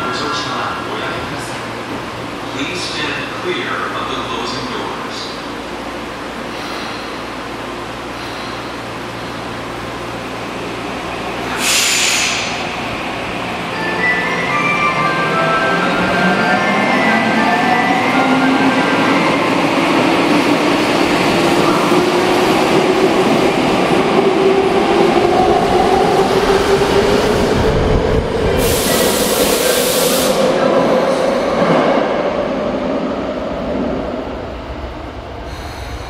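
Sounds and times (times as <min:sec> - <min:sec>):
hiss: 0:11.5 - 0:12.7, 0:28.6 - 0:30.4.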